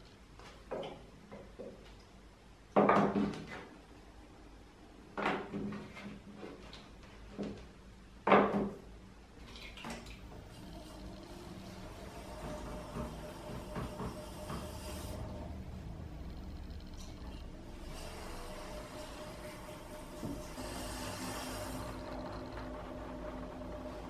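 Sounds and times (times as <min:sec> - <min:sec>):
electric potter's wheel hum: 0:10.3 - 0:24.0.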